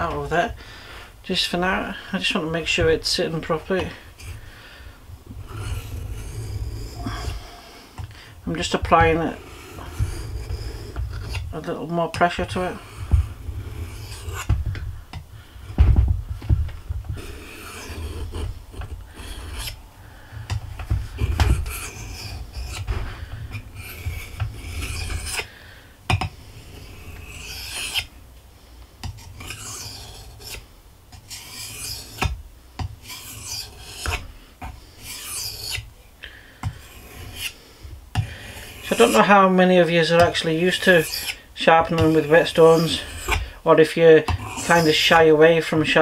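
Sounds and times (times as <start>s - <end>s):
knife rasping on whetstone: 5.3s - 8.0s, 8.6s - 11.5s, 12.4s - 14.6s, 17.2s - 19.8s, 20.5s - 25.5s, 26.5s - 28.1s, 29.1s - 30.6s, 31.2s - 32.4s, 33.0s - 35.9s, 36.6s - 37.6s, 38.2s - 39.5s, 40.1s - 43.5s, 44.3s - 45.3s
low bumps: 14.4s - 17.3s.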